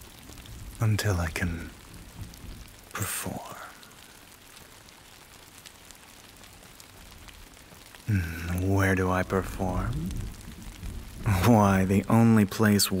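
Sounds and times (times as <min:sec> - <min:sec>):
rain falling: 0:00.0 - 0:13.0
person speaking a word: 0:08.1 - 0:10.1.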